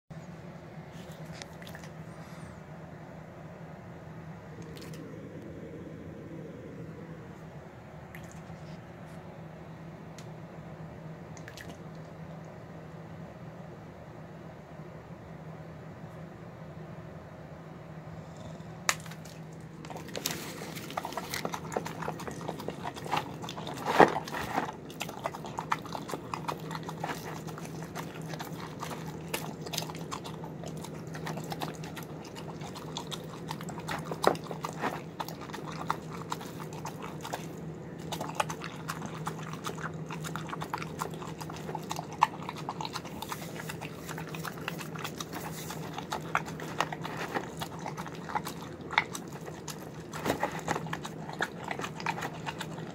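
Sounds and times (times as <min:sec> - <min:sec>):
dog chewing and smacking: 0:01.0 - 0:02.2, 0:18.3 - 0:52.9.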